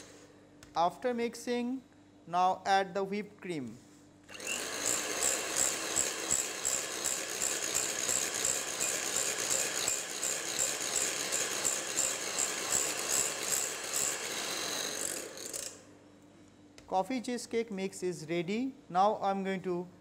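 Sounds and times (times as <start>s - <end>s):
electric mixer whipping cream: 4.3s - 15.7s.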